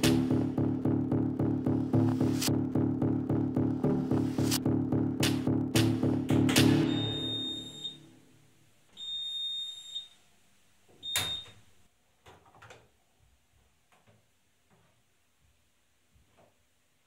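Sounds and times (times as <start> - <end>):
high electronic beeps: 6.8 - 8.1.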